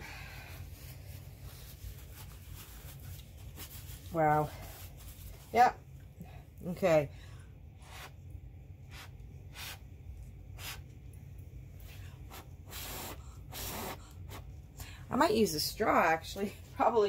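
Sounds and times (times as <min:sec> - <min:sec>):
low steady hum: 0:00.0 - 0:17.0
hands rustling and rubbing: 0:00.6 - 0:05.7.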